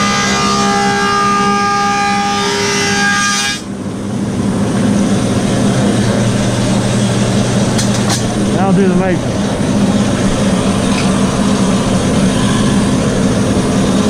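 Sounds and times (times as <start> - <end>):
planer cutting wood whining: 0.0 - 3.8.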